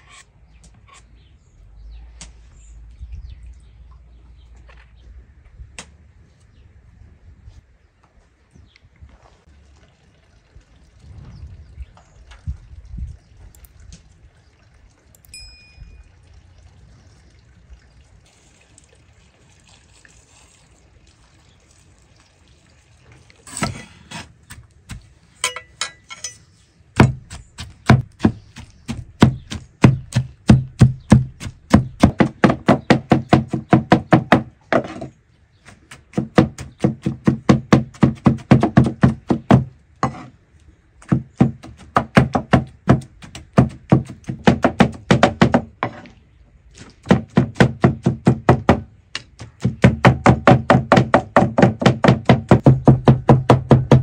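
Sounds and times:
cleavers chopping on wooden board: 27.0s - 35.1s, 35.7s - 40.2s, 41.0s - 46.0s, 47.0s - 54.0s.

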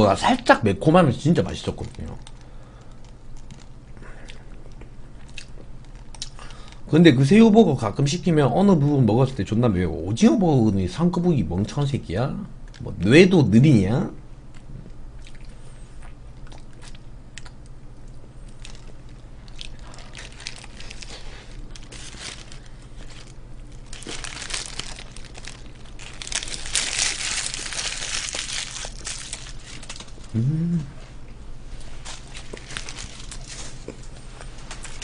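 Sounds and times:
paper crinkling: 1.4s - 3.7s, 18.5s - 30.3s, 31.9s - 35.0s
person crunching and chewing food: 1.4s - 6.9s, 14.5s - 30.9s, 32.0s - 35.0s.

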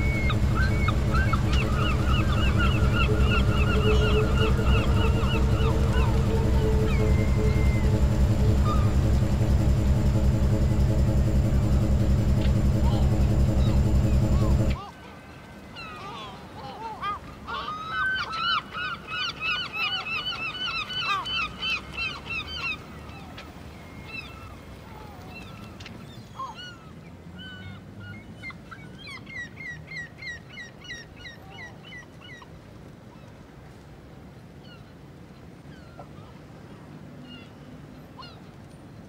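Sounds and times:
low steady rumble: 0.0s - 14.8s
gulls calling: 0.0s - 27.0s.

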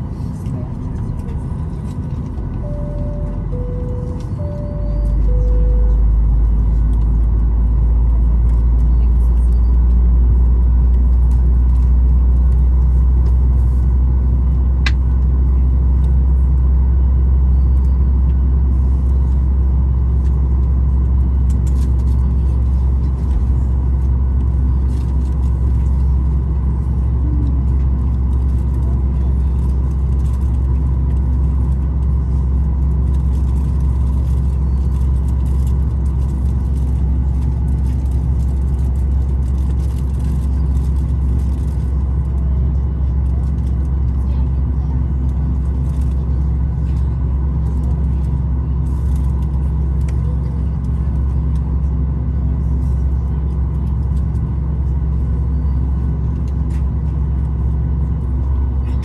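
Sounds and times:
faint whine tones: 0.0s - 11.0s
airliner cabin rumble: 0.0s - 59.0s.

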